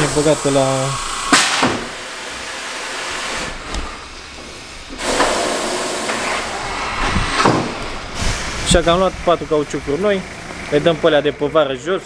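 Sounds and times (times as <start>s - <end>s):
compressed air hissing: 0.0s - 9.6s.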